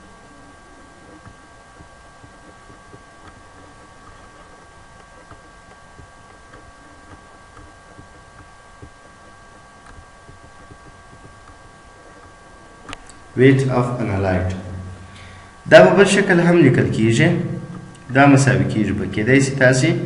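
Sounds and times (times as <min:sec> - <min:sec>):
thin electrical whine: 0:00.0 - 0:20.0
soft ticks: 0:01.2 - 0:09.2, 0:09.8 - 0:13.2.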